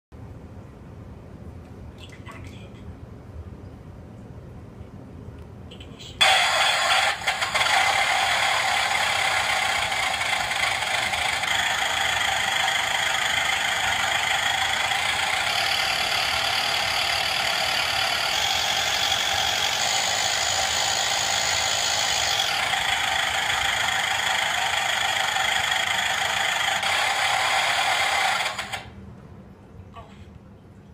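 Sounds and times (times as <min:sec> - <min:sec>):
simulated piston engine from speaker: 0:06.2 - 0:28.9.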